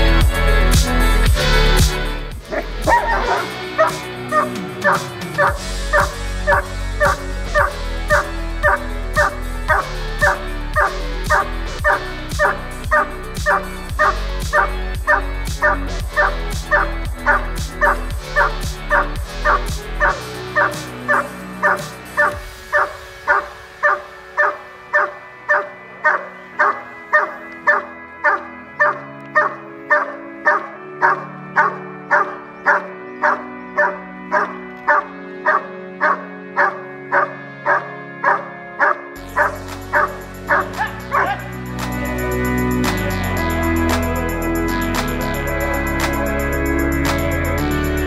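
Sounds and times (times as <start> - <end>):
background music: 0.0 - 48.0
dog barking sharply: 2.5 - 19.0, 20.6 - 41.5.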